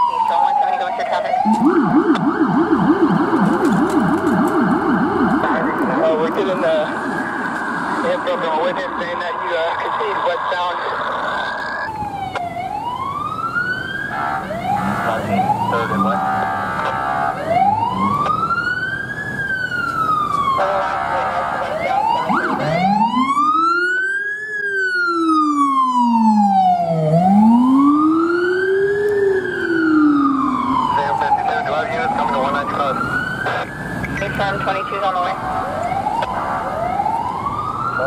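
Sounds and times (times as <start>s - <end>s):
low-pitched siren tone: 0.0s - 38.0s
police sirens wailing: 0.0s - 38.0s
air horn blasts: 15.9s - 17.4s.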